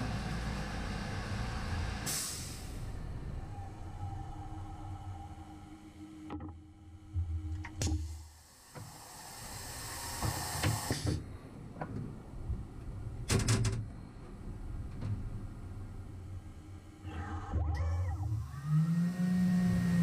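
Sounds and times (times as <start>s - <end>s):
pneumatic air hiss: 2.0s - 2.8s, 8.6s - 11.2s.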